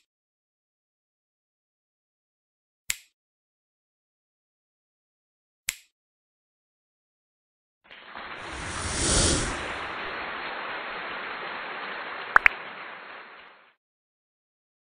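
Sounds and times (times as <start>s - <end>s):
steady hiss: 8.0s - 13.7s
whoosh: 8.3s - 10.2s.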